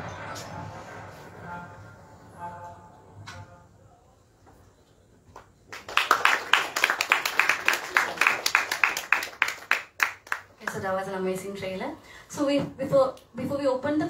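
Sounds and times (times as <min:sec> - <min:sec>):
faint music: 0:00.0 - 0:05.7
audience applause: 0:05.7 - 0:10.8.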